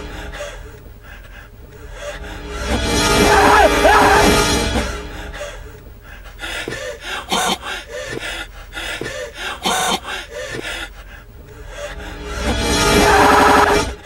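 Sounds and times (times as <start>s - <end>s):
man panting gasps: 5.2s - 12.3s.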